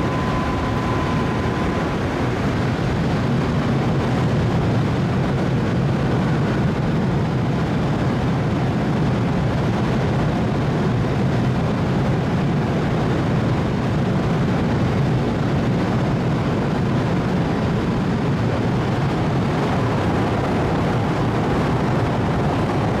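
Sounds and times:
low drone of ship machinery: 0.0s - 23.0s.

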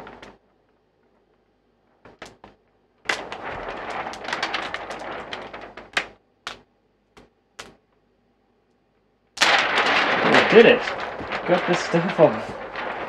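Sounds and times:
plastic film crackling as peeled: 3.1s - 7.8s, 9.4s - 13.0s.

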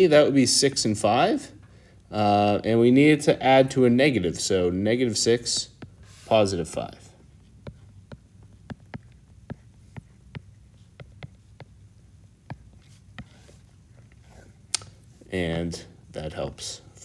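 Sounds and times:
low steady hum: 0.0s - 17.0s
stylus tapping on glass screen: 7.6s - 11.8s.

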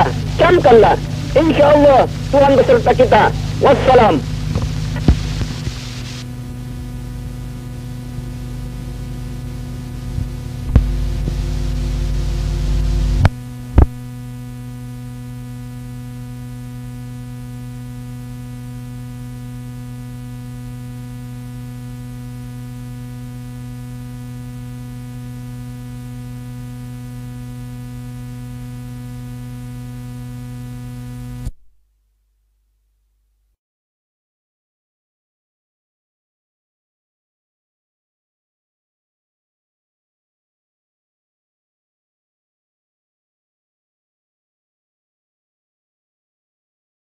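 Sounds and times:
burst of noise: 0.0s - 6.3s
electrical mains hum: 0.0s - 31.6s.

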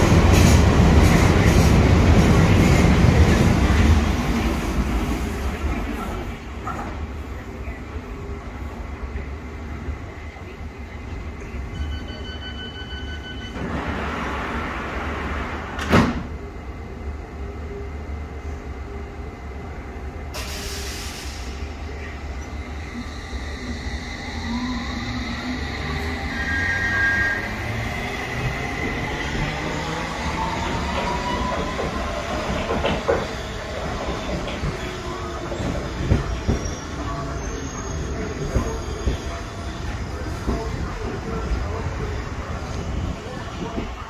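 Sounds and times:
door-closing beeps: 11.7s - 13.8s
train doors sliding shut: 13.3s - 16.4s, 28.8s - 40.7s
hiss of air: 20.3s - 21.8s.

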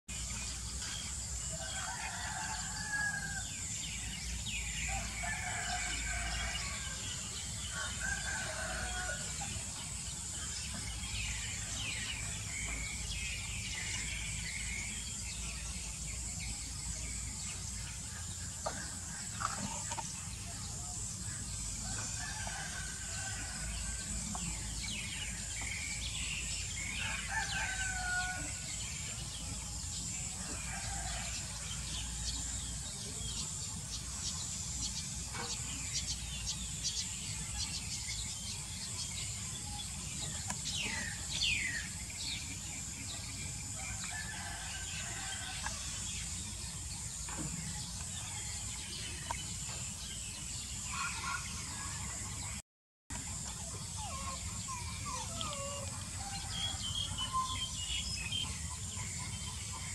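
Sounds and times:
roosters crowing: 1.5s - 3.6s, 4.8s - 9.7s, 21.8s - 24.6s, 26.8s - 28.8s, 30.2s - 32.2s, 43.6s - 46.3s.

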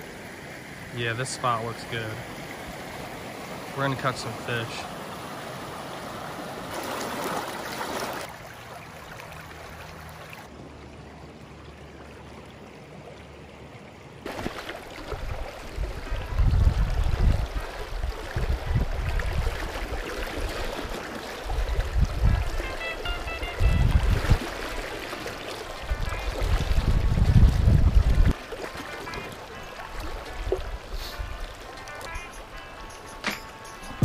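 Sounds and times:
creek water running over rocks: 0.0s - 34.0s
wind buffeting microphone: 15.2s - 22.7s, 23.5s - 24.5s, 25.8s - 28.4s.

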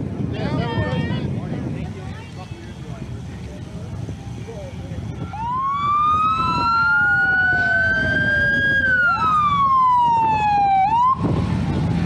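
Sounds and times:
motorcycle sirens wailing: 4.2s - 12.0s
siren yelp: 5.2s - 12.0s.

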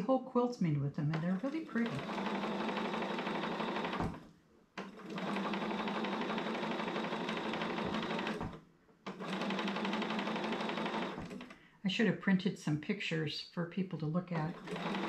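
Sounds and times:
sewing machine stitching: 1.0s - 11.6s, 14.4s - 15.0s.

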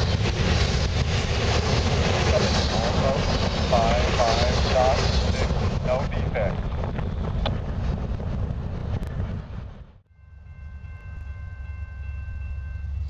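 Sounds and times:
low rumble: 0.0s - 10.0s
wind rumbling on microphone: 0.0s - 10.0s.

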